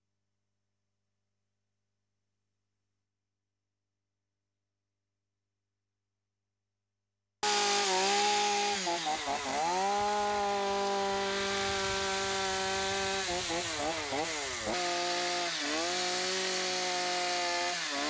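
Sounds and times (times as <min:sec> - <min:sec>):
chainsaw cutting wood: 0:07.4 - 0:18.0.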